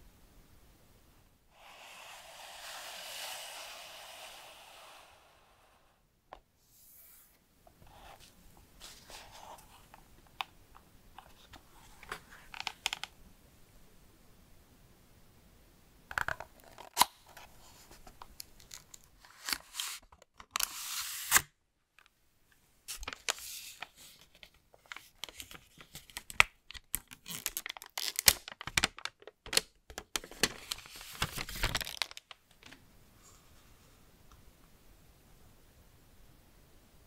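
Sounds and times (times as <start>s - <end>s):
paper packaging tearing and crinkling: 24.9s - 32.3s.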